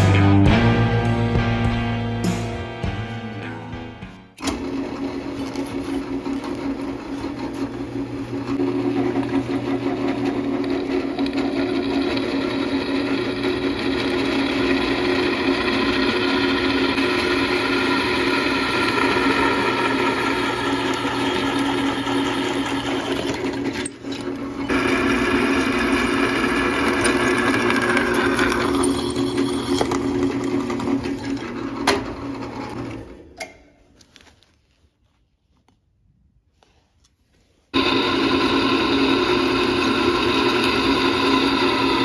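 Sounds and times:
drill press motor hum: 4.4s - 33.4s, 37.8s - 42.0s.

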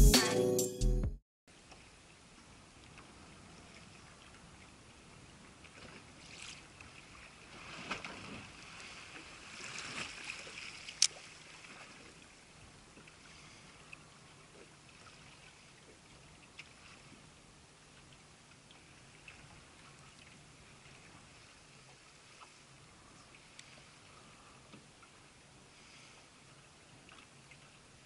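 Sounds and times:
small waves lapping against boat: 1.5s - 28.0s
splashy water swishes: 5.6s - 12.4s.

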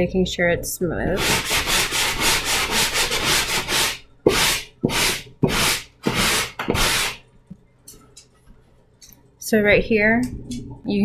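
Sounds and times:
sanding sponge rubbing wall: 1.2s - 7.2s.

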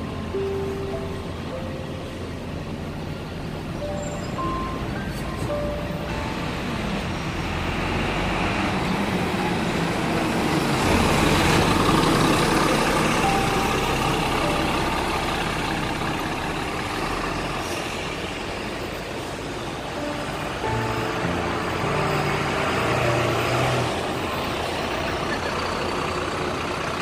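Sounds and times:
bus engine running: 0.0s - 27.0s.

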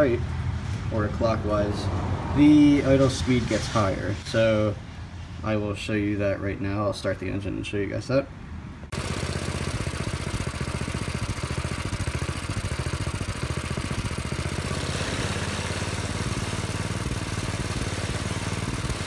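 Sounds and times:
engine idling: 8.9s - 19.0s.

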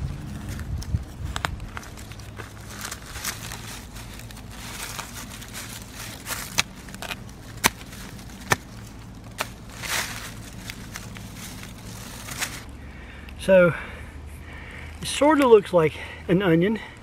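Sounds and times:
dry leaves and brush crunching: 0.0s - 13.6s.

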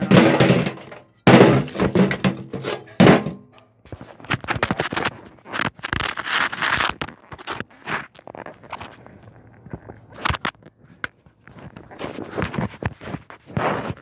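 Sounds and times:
hammer smashing clay pots: 0.0s - 3.6s
clattering knocks and scraping: 0.0s - 5.2s.

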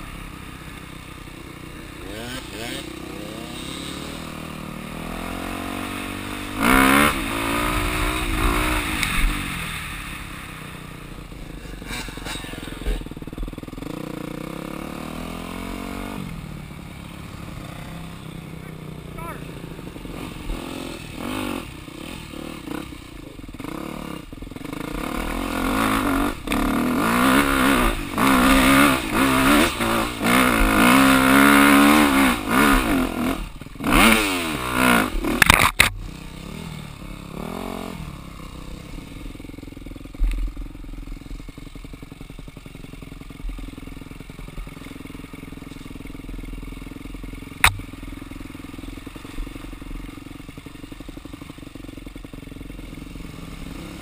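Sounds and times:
dirt bike engine revving: 0.0s - 54.0s
sharp click: 35.4s - 36.0s, 47.6s - 47.8s.

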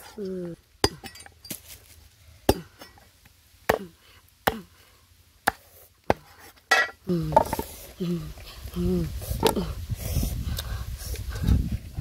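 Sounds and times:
cleaver chopping on wooden block: 4.5s - 4.7s, 5.4s - 6.9s.

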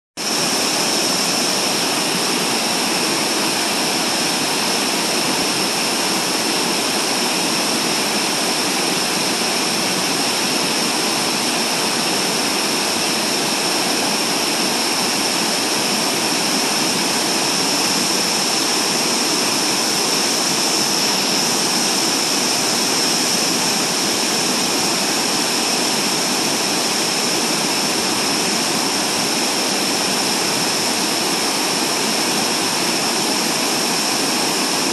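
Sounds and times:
waterfall rushing: 0.2s - 34.9s.

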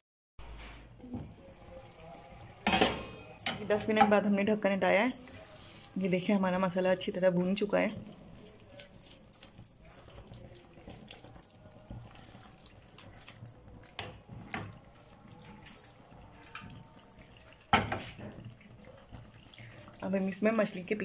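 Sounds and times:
sauce sizzling in a wok: 5.2s - 21.0s.

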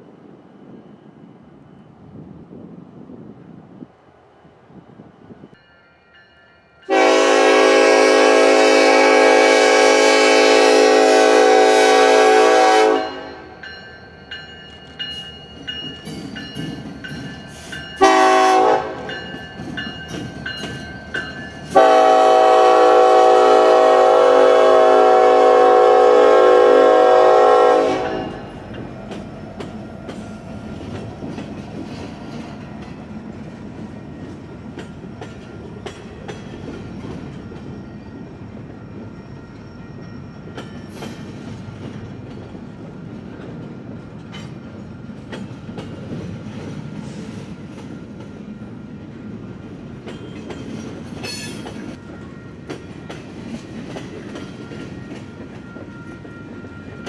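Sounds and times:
train horn blasts: 6.9s - 13.6s, 18.0s - 19.2s, 21.7s - 28.6s
train wheels clicking over rail joints: 14.4s - 18.0s, 19.0s - 22.0s, 28.2s - 57.0s.

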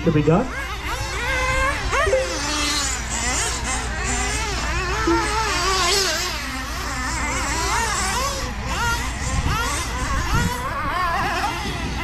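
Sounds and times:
rc truck engines whining: 0.0s - 12.0s.

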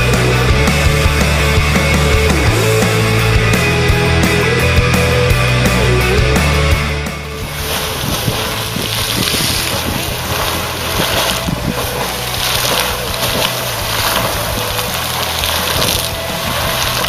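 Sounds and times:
wind buffeting microphone: 7.2s - 17.0s
geyser rushing water and steam: 7.3s - 17.0s.

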